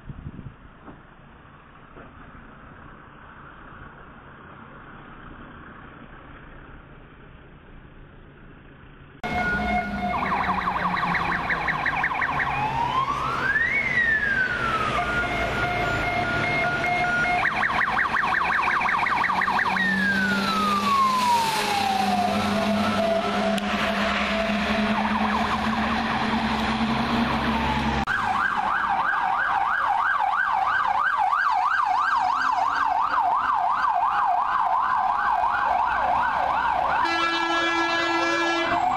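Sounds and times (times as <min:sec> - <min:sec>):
engine rumble: 0:00.0 - 0:38.9
traffic noise: 0:00.0 - 0:38.9
fire engine sirens: 0:09.2 - 0:38.9.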